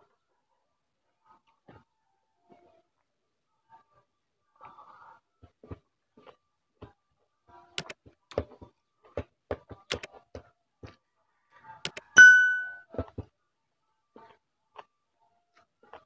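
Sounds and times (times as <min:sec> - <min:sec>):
bell ding sound effect: 0:12.2 - 0:12.8.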